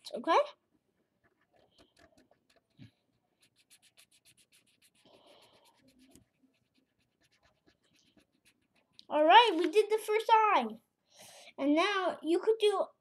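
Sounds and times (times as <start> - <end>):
marker scratching on paper: 1.0 - 10.0.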